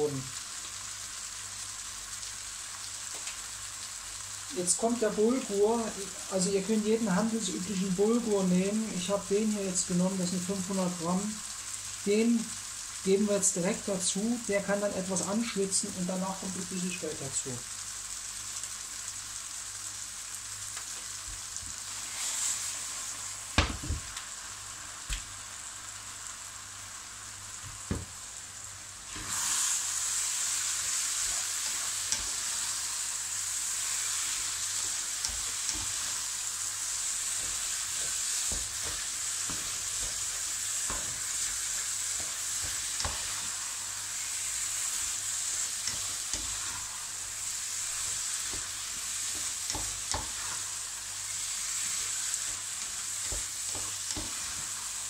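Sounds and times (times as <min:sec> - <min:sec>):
food sizzling in a pan: 0:00.0 - 0:55.0
spatula scraping a pan: 0:29.1 - 0:33.0, 0:45.8 - 0:47.2.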